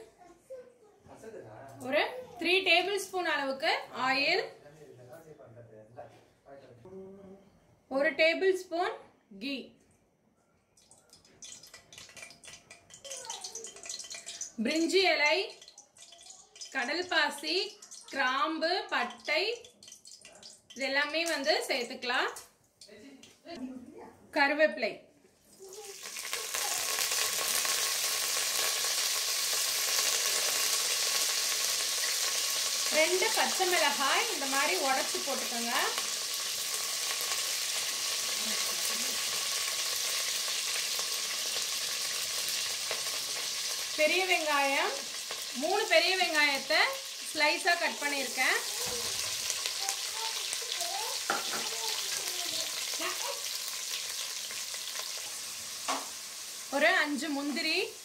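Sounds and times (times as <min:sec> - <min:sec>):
leaves sizzling in hot oil: 0:11.4 - 0:22.0, 0:25.5 - 0:58.0.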